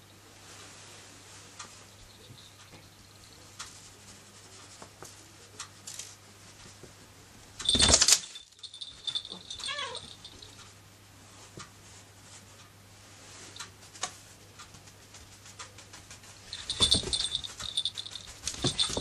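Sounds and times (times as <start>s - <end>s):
cat crying: 9.6s - 10.1s.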